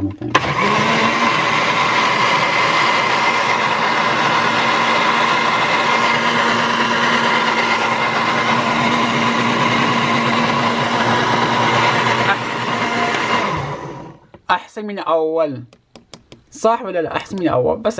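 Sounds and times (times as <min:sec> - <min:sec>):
blender running: 0:00.3 - 0:14.2.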